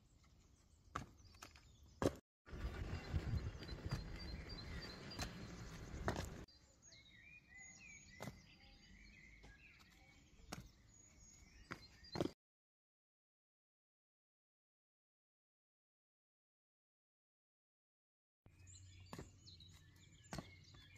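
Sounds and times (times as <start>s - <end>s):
small birds chirping: 0.0s - 12.4s, 18.5s - 20.9s
footsteps on concrete steps: 0.2s - 2.2s, 3.7s - 6.5s, 8.1s - 8.6s, 9.3s - 12.4s, 18.9s - 20.9s.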